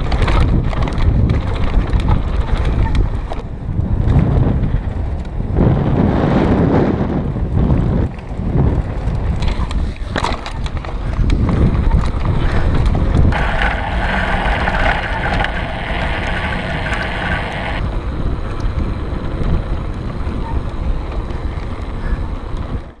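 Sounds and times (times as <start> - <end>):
wind buffeting microphone: 0.0 - 23.0
high hiss: 13.3 - 17.8
tyres rumbling on dirt: 13.3 - 17.8.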